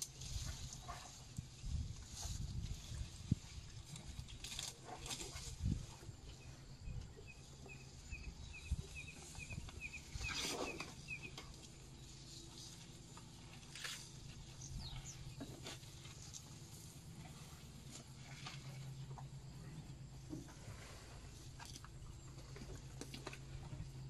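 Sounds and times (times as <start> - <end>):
elephants rustling and snapping twigs: 0.0 - 6.0, 8.7 - 19.3, 20.7 - 23.8
steady low hum: 0.0 - 24.0
bird chirping: 6.4 - 12.4, 14.5 - 15.5.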